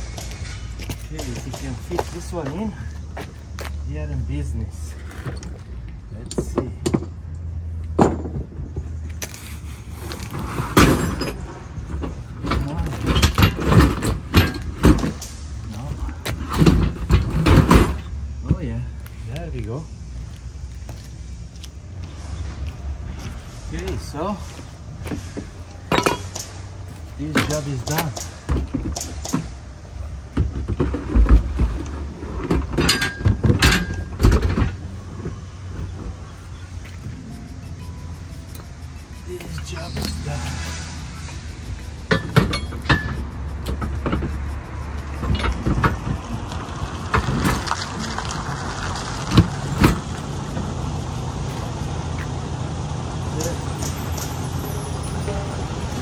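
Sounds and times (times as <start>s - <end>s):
tools knocking and clunking: 6.2s - 7.2s, 7.9s - 8.9s, 10.7s - 15.4s, 25.0s - 26.6s, 30.3s - 36.2s, 42.0s - 44.4s.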